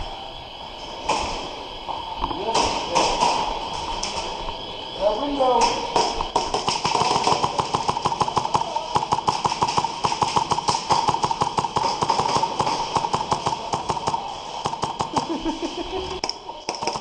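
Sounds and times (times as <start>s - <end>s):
airsoft gunfire: 2.5s - 3.6s, 5.6s - 15.6s, 16.2s - 17.0s.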